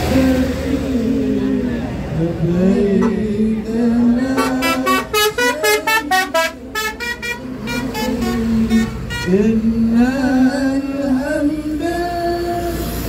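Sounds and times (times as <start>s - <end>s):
bus multi-tone horn tune: 2.8s - 11.9s.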